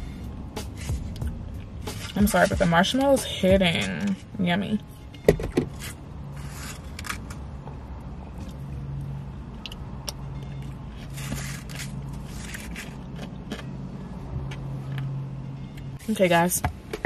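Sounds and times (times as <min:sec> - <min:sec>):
car engine hum inside cabin: 0:00.0 - 0:17.0
spoon scraping shaved ice: 0:11.0 - 0:13.3.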